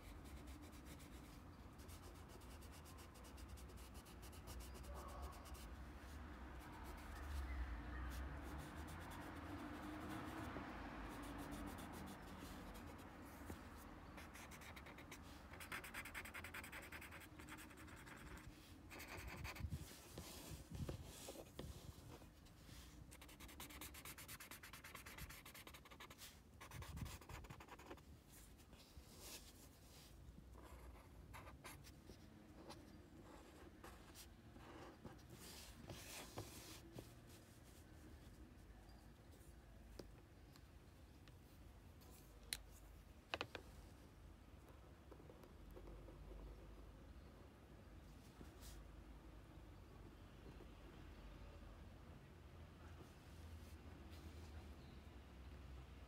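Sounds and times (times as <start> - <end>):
drawing tip scratching paper: 14.2 - 21.7.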